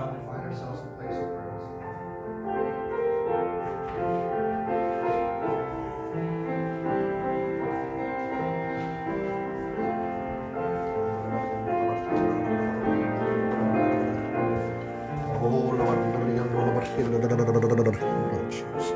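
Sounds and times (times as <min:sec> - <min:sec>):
slow soft keyboard music: 0:00.0 - 0:18.9.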